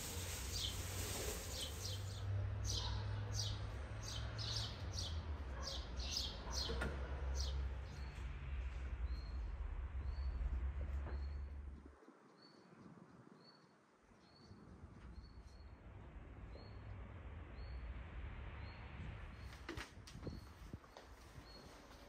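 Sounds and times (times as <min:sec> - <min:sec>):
low rumble: 0:07.5 - 0:12.0.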